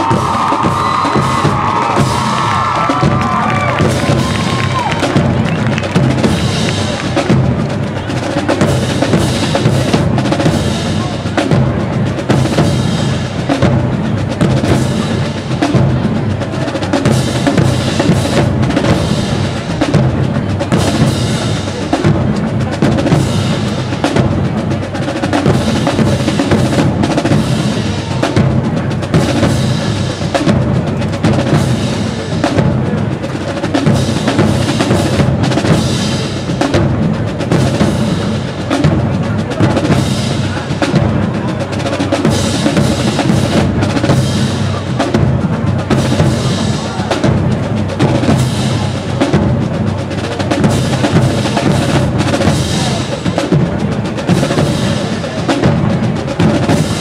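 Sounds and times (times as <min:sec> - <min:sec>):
bass and snare drums: 0:00.0 - 0:57.0
marching band playing: 0:00.0 - 0:57.0.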